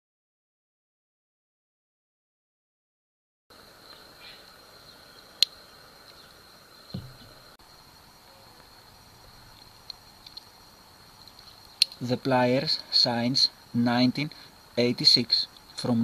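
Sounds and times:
faint hiss with high whine: 3.5 - 16.0
soft thump on wooden table: 6.9 - 7.4.

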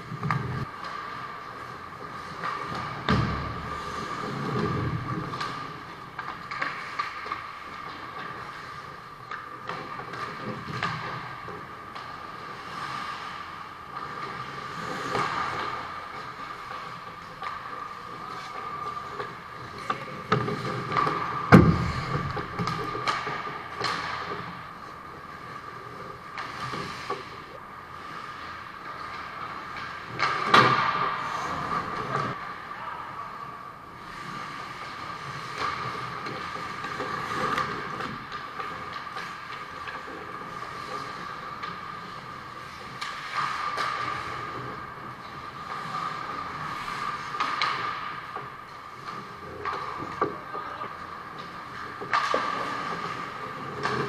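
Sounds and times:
hockey sticks and puck clacking: 0.0 - 54.0
skates scraping on ice: 0.0 - 54.0.

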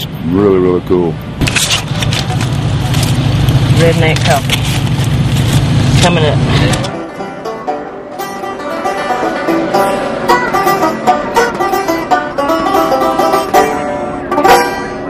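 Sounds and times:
picked banjo music: 6.8 - 15.0.

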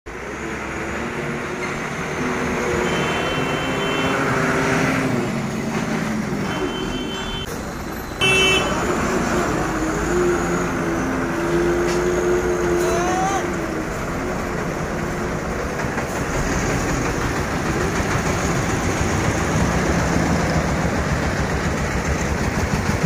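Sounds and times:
diesel truck engine running: 0.1 - 23.0
truck horn blast: 2.6 - 5.0, 6.4 - 7.5, 8.2 - 9.0.

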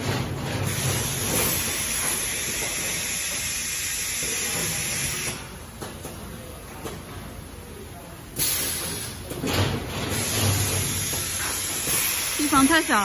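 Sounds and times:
welding machine hissing: 0.6 - 5.5, 10.1 - 13.0.

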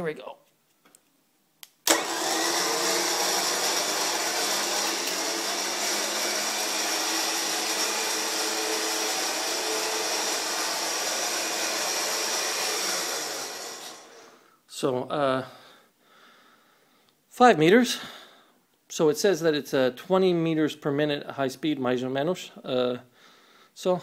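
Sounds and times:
electric winch running: 1.9 - 14.4.

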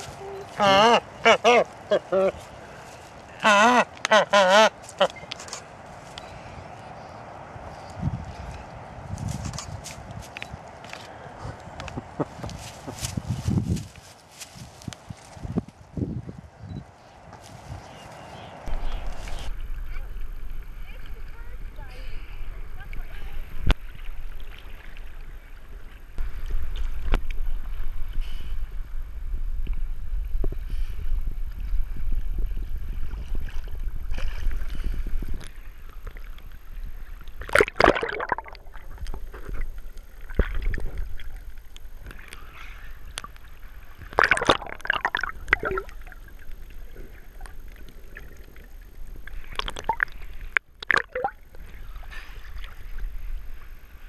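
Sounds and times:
water splashing: 0.0 - 6.6, 18.2 - 30.6, 31.4 - 54.0
low rumble: 18.6 - 37.0
sea water sloshing and gurgling: 18.7 - 54.0.

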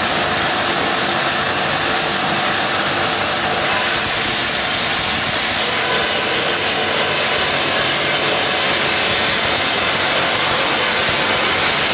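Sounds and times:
rock drill with strong hiss: 0.0 - 11.9.

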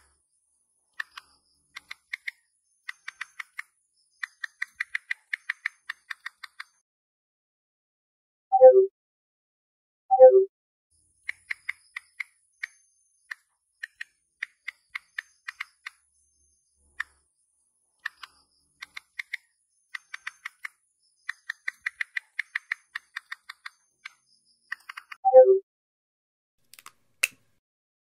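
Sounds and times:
phone keyboard clicks: 1.0 - 6.7, 11.3 - 16.0, 18.0 - 19.4, 20.0 - 25.2, 26.7 - 27.4.

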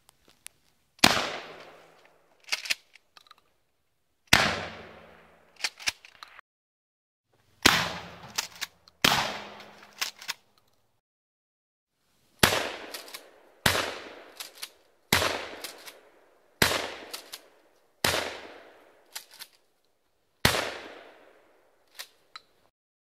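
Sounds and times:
shotgun shots: 1.0 - 1.8, 4.3 - 5.4, 7.6 - 10.0, 12.4 - 14.5, 15.1 - 18.8, 20.4 - 21.4.

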